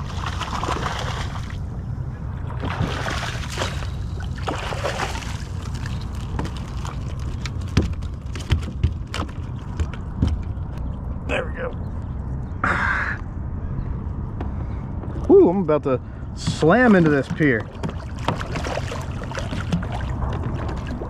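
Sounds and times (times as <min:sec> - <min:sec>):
fish splashing at the surface: 0:00.0 - 0:01.6, 0:02.6 - 0:07.2, 0:17.0 - 0:21.0
low rumble: 0:00.0 - 0:08.4, 0:09.5 - 0:21.0
water sloshing: 0:00.0 - 0:10.8, 0:16.4 - 0:21.0.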